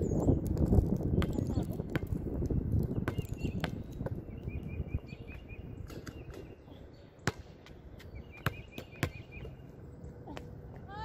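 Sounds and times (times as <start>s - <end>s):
basketball bouncing on hard court: 1.2s - 2.2s, 3.0s - 4.2s, 7.2s - 7.5s, 8.4s - 9.5s
bird chirping: 2.9s - 10.3s.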